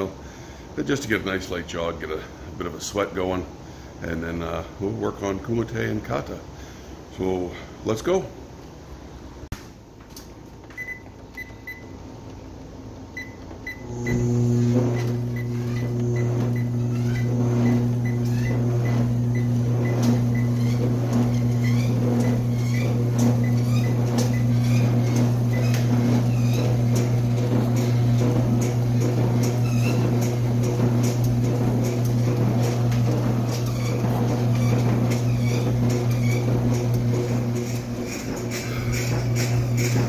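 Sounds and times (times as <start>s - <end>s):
treadmill motor hum: 10.5s - 40.0s
treadmill console beeps: 10.7s - 12.0s, 13.1s - 40.0s.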